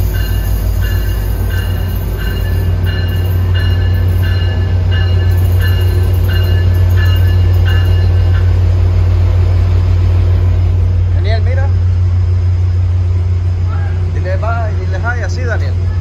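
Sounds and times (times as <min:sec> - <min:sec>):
locomotive bell ringing: 0:00.0 - 0:08.7
diesel locomotive engine drone: 0:00.0 - 0:16.0.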